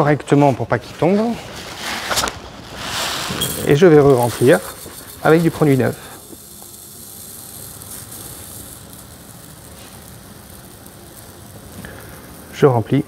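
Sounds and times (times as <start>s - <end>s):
granules pouring into plastic cup: 2.7s - 13.0s.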